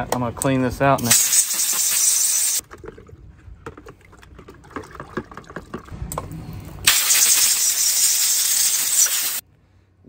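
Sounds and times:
hose nozzle spraying hiss: 1.1 - 2.6, 6.9 - 9.4
water sloshing in bucket: 2.6 - 6.0.

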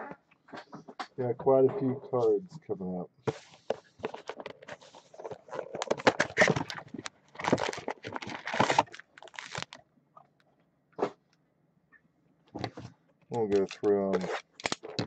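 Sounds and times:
cardboard box crackling and rustling: 3.3 - 9.8.

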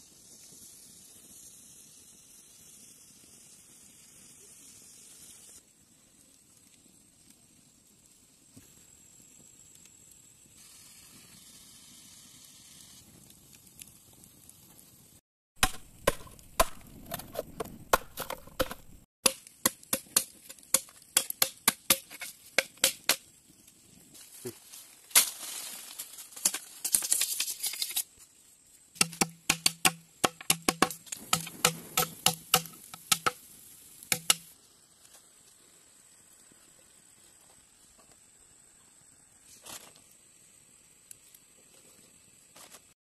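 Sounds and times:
machete chopping bamboo: 15.6 - 23.2, 29.0 - 33.4, 34.1 - 34.5.

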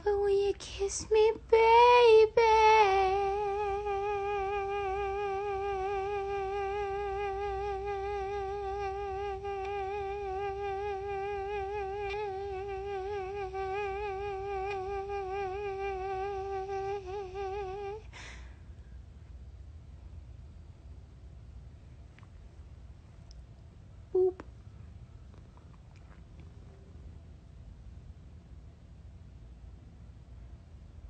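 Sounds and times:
woman humming: 2.2 - 18.4, 24.2 - 24.5.

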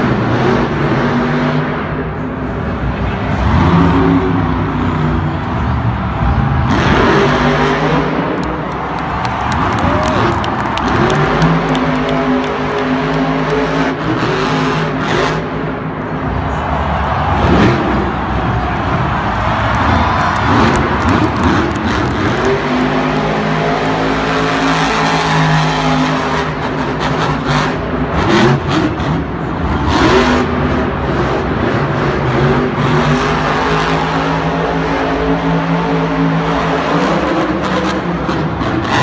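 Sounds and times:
monster truck engine revving: 0.0 - 39.0.

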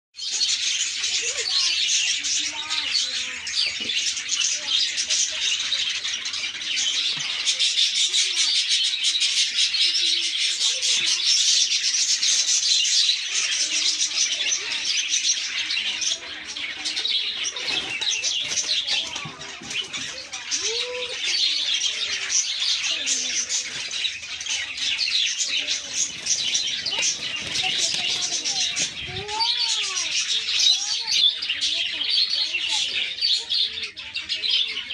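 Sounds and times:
budgerigars chattering and chirping: 0.2 - 34.9.

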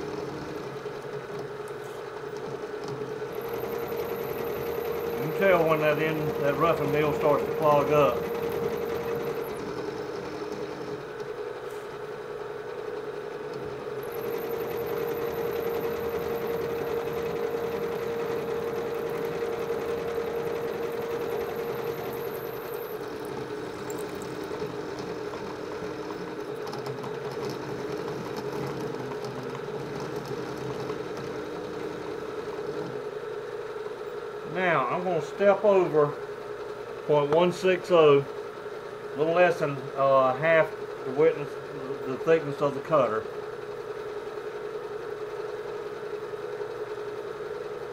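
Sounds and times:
milling machine cutting: 0.0 - 33.2.

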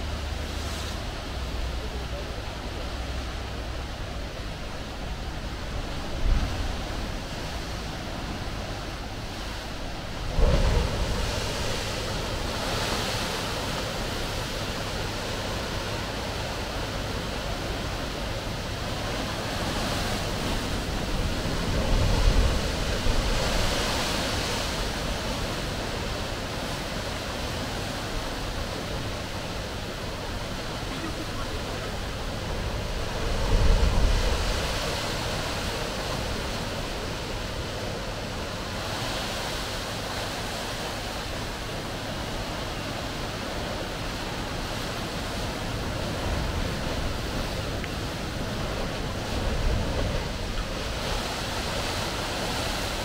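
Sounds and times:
sea waves washing on shore: 0.0 - 53.0
wind buffeting microphone: 3.4 - 40.3.

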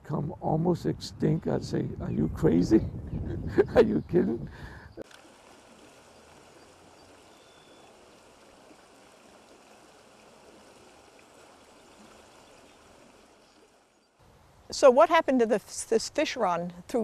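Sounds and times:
faint running water: 5.0 - 17.0.

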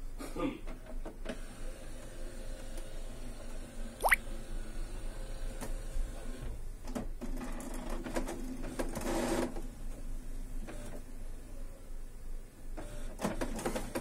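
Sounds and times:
printer mechanism whirring and clicking: 10.6 - 11.0, 12.8 - 14.0.

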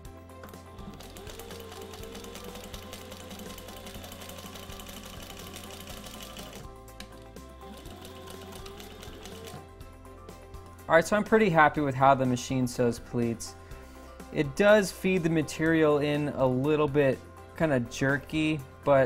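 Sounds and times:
sewing machine stitching: 0.8 - 6.7, 7.6 - 9.6.

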